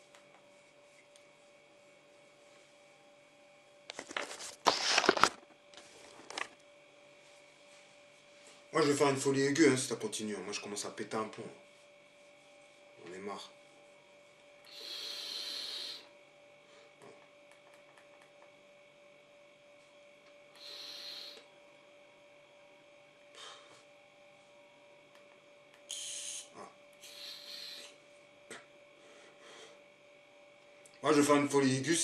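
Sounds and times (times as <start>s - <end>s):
steady electrical hum: 0.0s - 32.0s
e-cigarette puffs hissing: 14.7s - 16.1s, 20.6s - 21.5s, 25.9s - 28.0s.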